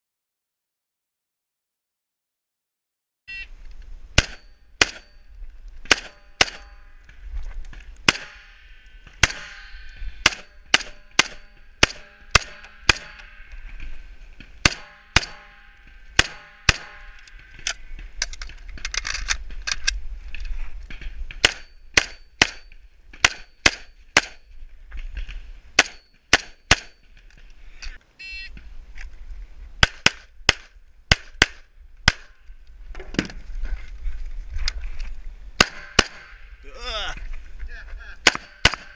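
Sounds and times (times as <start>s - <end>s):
handgun shots: 4.2s - 5.2s, 5.9s - 6.8s, 8.0s - 8.5s, 9.2s - 9.6s, 10.2s - 13.4s, 14.6s - 15.6s, 16.2s - 17.2s, 21.4s - 24.4s, 25.8s - 27.0s, 38.2s - 38.9s
rifle shots: 4.2s - 5.2s, 5.8s - 6.8s, 8.0s - 8.6s, 9.2s - 13.4s, 14.6s - 17.2s, 21.4s - 24.4s, 25.8s - 27.0s, 29.8s - 32.4s, 35.6s - 36.4s, 38.2s - 38.9s.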